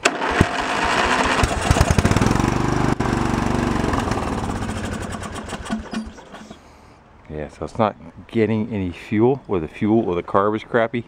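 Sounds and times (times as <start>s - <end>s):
engine cranking on starter: 0.0s - 6.8s.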